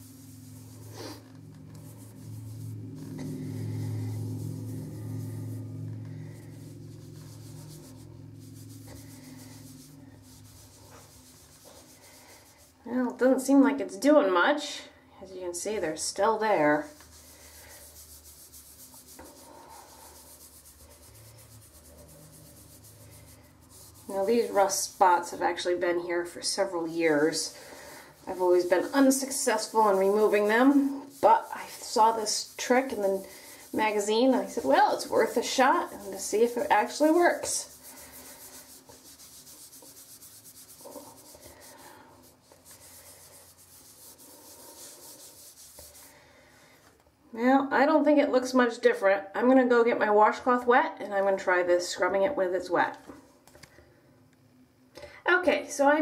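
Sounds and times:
cloth scrubbing bathtub: 0.0s - 13.4s, 15.7s - 46.5s.

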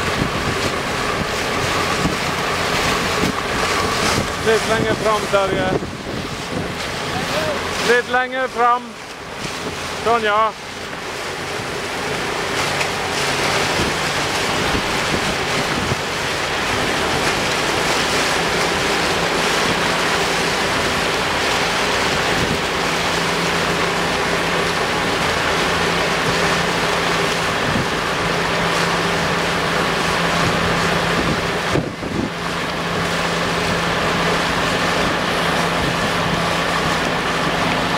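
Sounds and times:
boat engine hum: 0.0s - 37.9s
water rushing and splashing: 0.0s - 37.9s.

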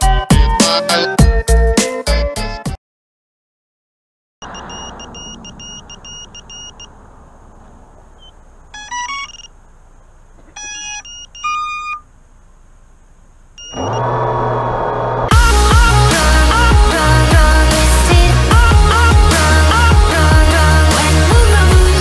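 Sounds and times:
music: 0.0s - 2.8s, 15.3s - 22.0s
rapid high electronic beeps: 4.5s - 6.9s, 8.2s - 9.5s, 10.6s - 12.0s
background hiss: 4.7s - 13.7s
stepped electronic tones: 8.2s - 9.6s, 10.5s - 12.1s, 13.6s - 14.1s.

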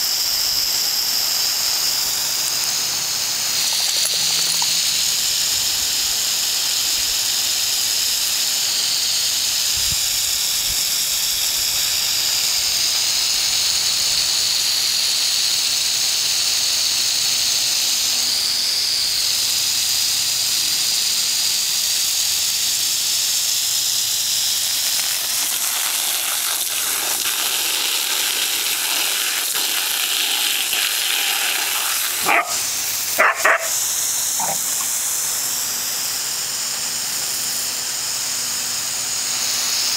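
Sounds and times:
sprinkler water jet hissing: 0.0s - 39.9s
dog barking: 32.2s - 35.0s.

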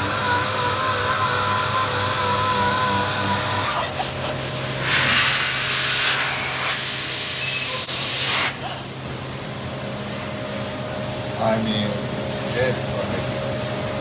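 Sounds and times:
pneumatic sander stopping: 0.0s - 3.8s
low machinery hum: 0.0s - 7.9s
compressed air hissing: 4.4s - 8.6s.

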